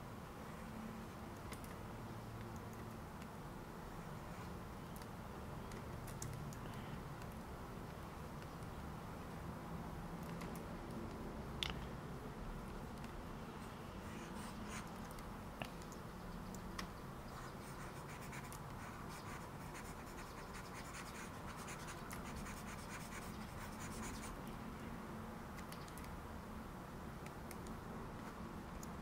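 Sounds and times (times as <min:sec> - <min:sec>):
stylus scratching on tablet: 0:13.6 - 0:15.1, 0:17.3 - 0:24.4
light clicks: 0:25.6 - 0:26.2.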